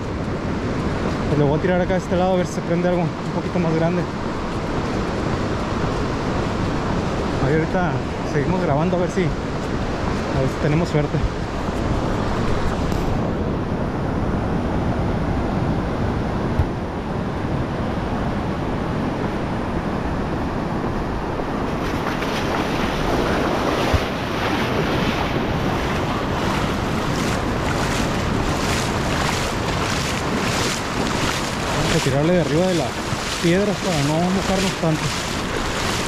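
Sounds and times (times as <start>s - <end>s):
surf washing onto shore: 0.0s - 36.0s
wind buffeting microphone: 0.0s - 36.0s.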